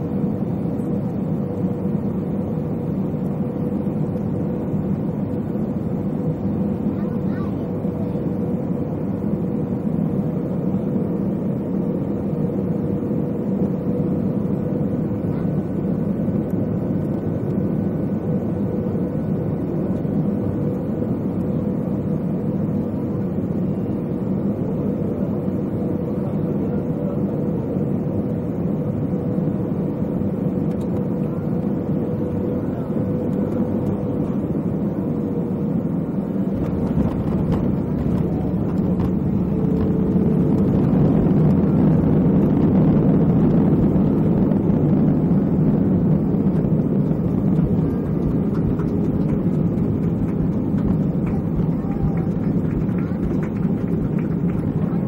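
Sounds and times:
aircraft cabin engine drone: 0:00.0 - 0:55.0
faint whine: 0:23.0 - 0:55.0.

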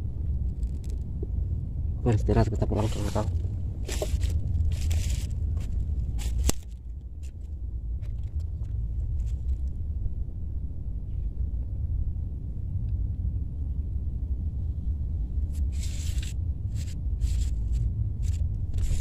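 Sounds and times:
wind rumbling on microphone: 0:00.0 - 0:19.0
rustles and clicks: 0:02.2 - 0:09.8, 0:15.5 - 0:19.0.

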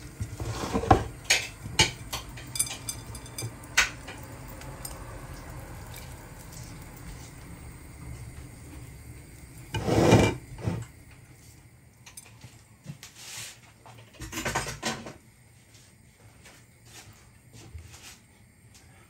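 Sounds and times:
bowls and utensils knocking: 0:00.6 - 0:04.2.

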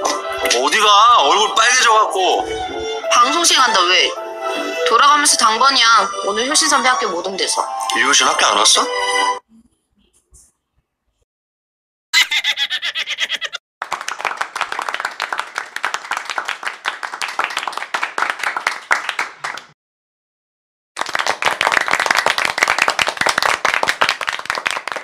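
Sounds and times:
many hands clapping: 0:13.8 - 0:19.8, 0:21.0 - 0:25.0.

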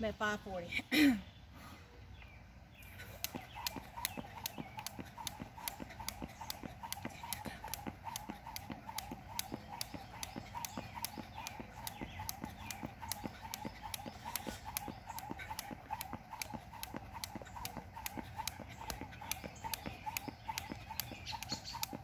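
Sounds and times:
jump rope slapping asphalt: 0:03.0 - 0:22.0
sneakers landing: 0:03.3 - 0:21.1.

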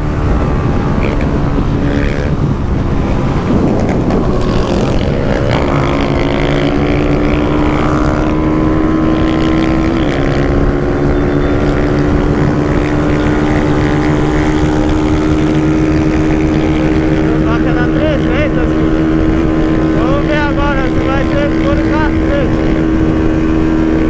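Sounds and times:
motorcycle engine at high revs: 0:00.0 - 0:24.0
wind on microphone: 0:00.0 - 0:24.0.

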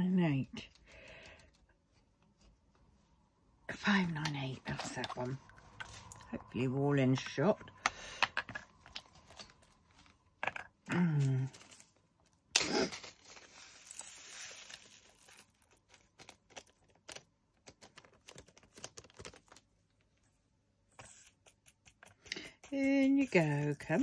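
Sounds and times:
plastic bag rustling: 0:11.4 - 0:19.6
small plastic beads rattling: 0:12.6 - 0:19.6.

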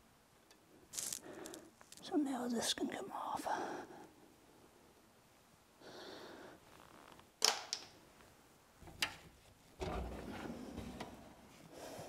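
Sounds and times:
steel drawer rolling open: 0:09.8 - 0:11.2.

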